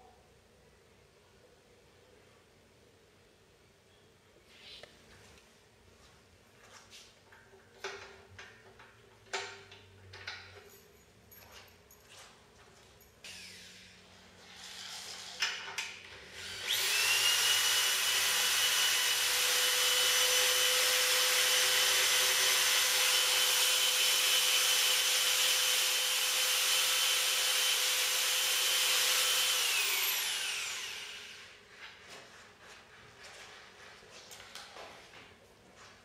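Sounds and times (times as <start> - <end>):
electric drill whining: 13.2 - 15.3, 16.2 - 31.6.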